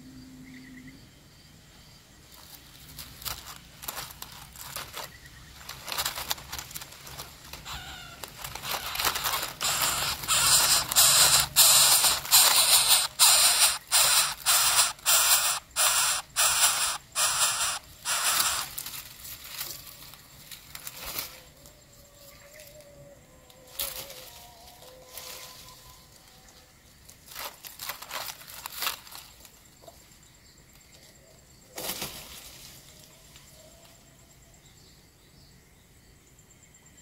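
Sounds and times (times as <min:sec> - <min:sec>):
chicks giving harsh hissing calls: 0:05.7 - 0:19.1.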